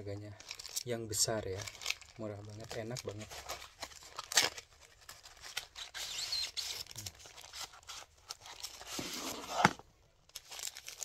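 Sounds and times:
paper wrapper crinkling: 0.1 - 11.0.

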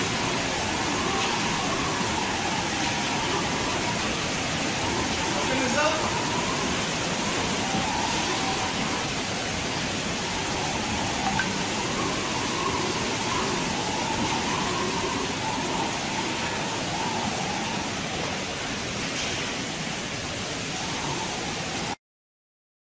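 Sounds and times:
heavy wind-driven rain: 0.0 - 22.0.

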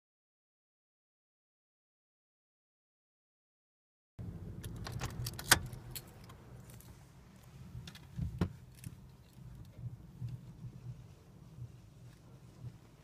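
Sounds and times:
car wash machinery humming: 4.2 - 13.0.

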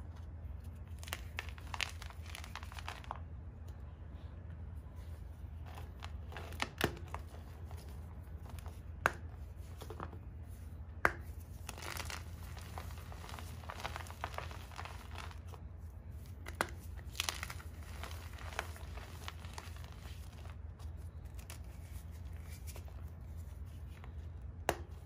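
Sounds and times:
low steady hum: 0.0 - 25.0
hands crunching chalk: 0.6 - 3.2, 5.6 - 10.1, 11.1 - 15.6, 16.2 - 25.0.

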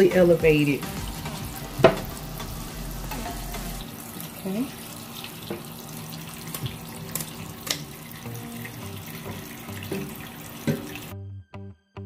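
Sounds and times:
background music: 0.0 - 3.8, 8.2 - 12.0
tap running into a sink: 1.3 - 3.8, 5.2 - 11.1.

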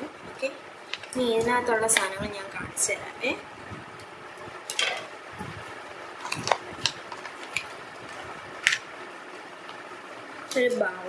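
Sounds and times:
plastic tubs clicking: 6.2 - 8.9.

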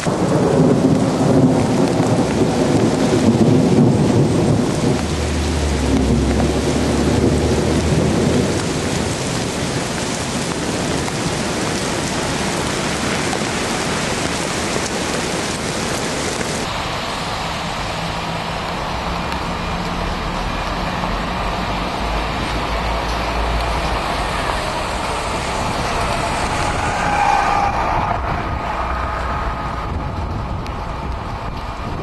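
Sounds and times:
heavy rain pouring: 0.0 - 32.0
vehicle driving on wet road: 0.0 - 32.0
low rumble: 0.6 - 10.1, 16.7 - 32.0.

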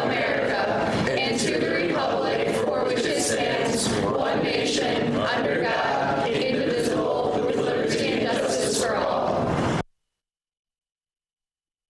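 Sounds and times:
group of voices chanting in unison: 0.0 - 9.5.

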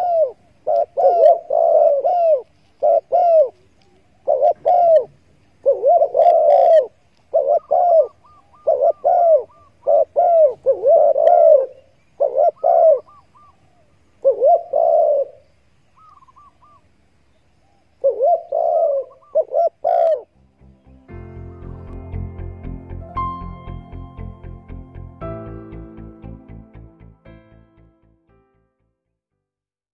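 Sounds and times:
dove cooing: 0.0 - 16.9, 17.6 - 20.3
faint higher bird notes: 18.1 - 26.8.

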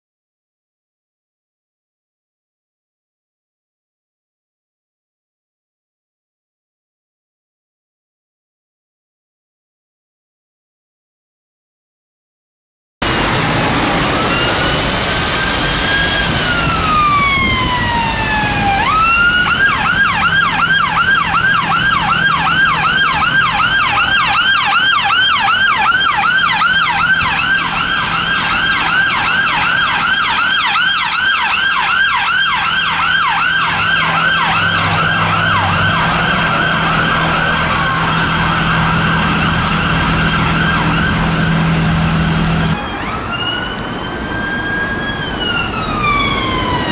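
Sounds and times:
ambulance siren: 13.0 - 46.9.

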